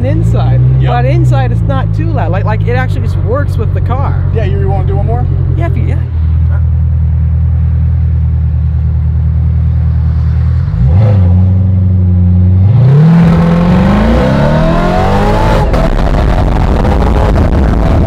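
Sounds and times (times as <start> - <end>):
car engine revving and accelerating: 9.6 - 18.0.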